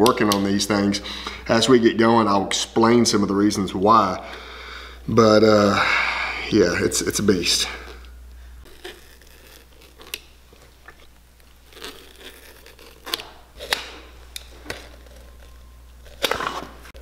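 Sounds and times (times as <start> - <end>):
rubber sole tearing loose: 8.7 - 17.0.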